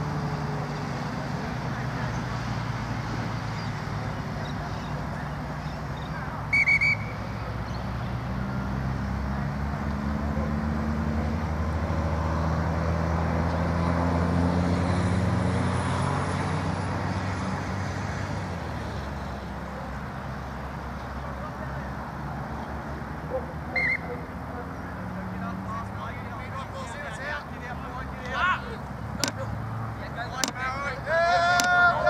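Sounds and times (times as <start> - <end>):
vehicle passing by: 0.0 - 32.0
pea whistle blast: 6.5 - 7.2.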